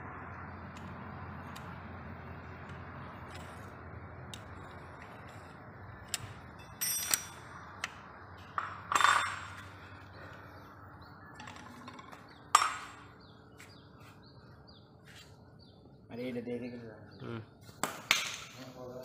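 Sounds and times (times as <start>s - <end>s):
metal tools clinking: 6.5s - 7.6s, 8.5s - 9.7s.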